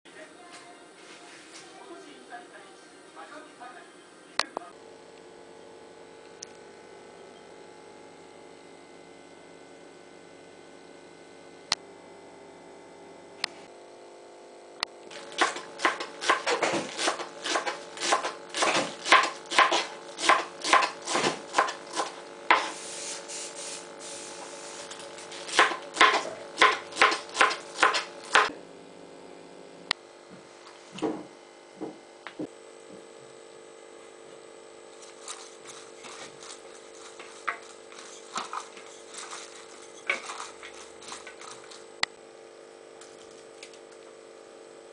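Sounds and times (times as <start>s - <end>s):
knife chopping on cutting board: 15.4s - 22.8s, 25.5s - 28.5s.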